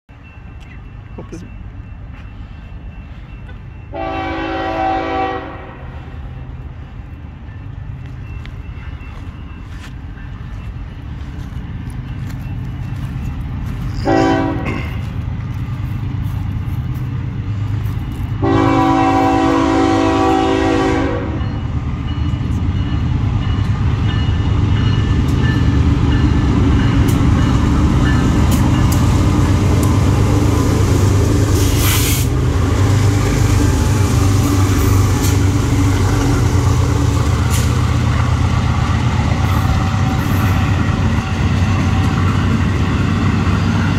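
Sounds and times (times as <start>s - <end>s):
diesel locomotive engines rumbling: 0.1s - 43.9s
locomotive horn blasts: 3.9s - 6.1s, 13.9s - 15.0s, 18.4s - 21.5s.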